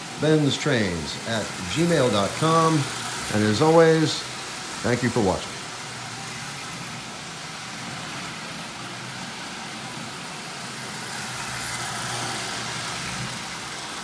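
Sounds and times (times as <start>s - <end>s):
toy train motor whir and rumble: 0.0s - 14.0s.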